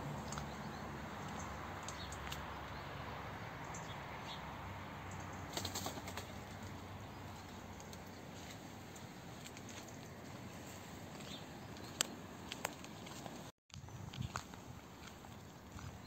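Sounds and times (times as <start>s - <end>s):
leaves and branches rustling: 5.3s - 16.0s
twigs crackling: 5.5s - 13.5s.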